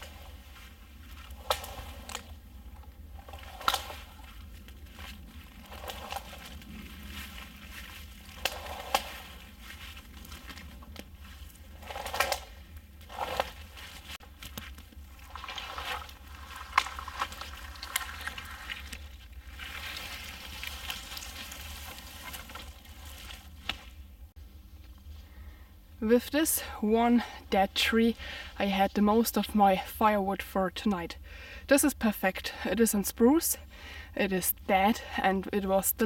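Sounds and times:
twigs rustling and crackling: 0.0 - 25.3.

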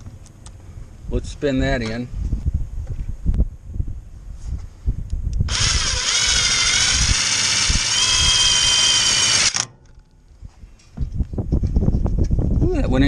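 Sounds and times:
cordless drill whining: 5.5 - 9.7.

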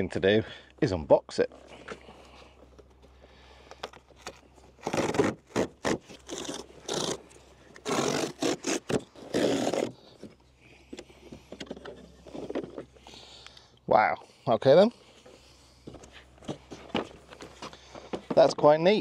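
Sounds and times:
cardboard tearing: 4.2 - 10.0.

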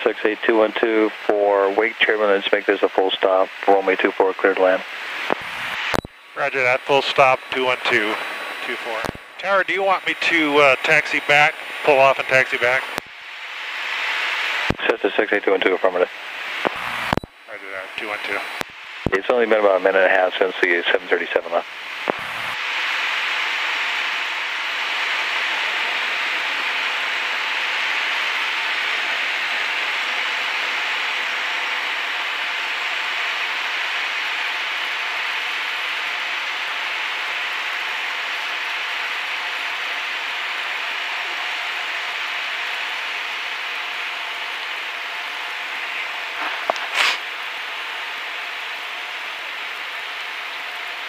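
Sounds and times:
click: 5.3 - 6.1, 16.6 - 17.3.

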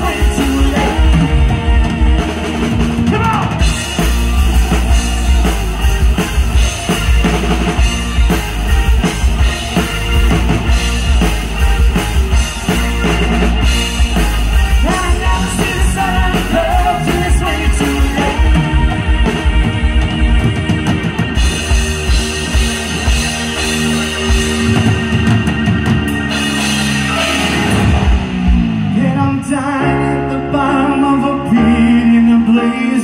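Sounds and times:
person singing: 0.0 - 3.6, 14.7 - 21.0, 28.9 - 33.0
pounding drum kit: 0.0 - 29.8
electric guitars: 0.0 - 33.0
live rock band playing: 0.0 - 33.0.

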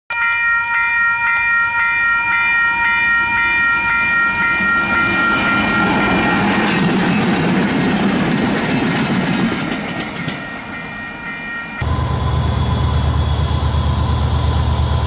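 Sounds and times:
level crossing warning bells: 0.1 - 8.8, 9.4 - 15.0
train rumble: 3.8 - 11.0, 11.8 - 15.0.

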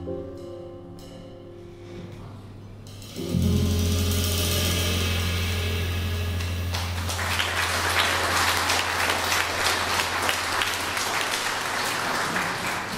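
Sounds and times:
jazz band final chord: 2.9 - 10.3
audience applauding: 6.4 - 12.9.

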